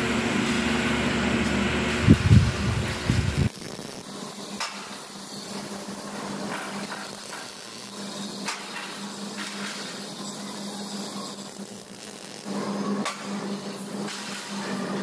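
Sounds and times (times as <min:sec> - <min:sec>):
steady low hum: 0:00.0 - 0:04.0
welding arc crackling: 0:00.0 - 0:15.0.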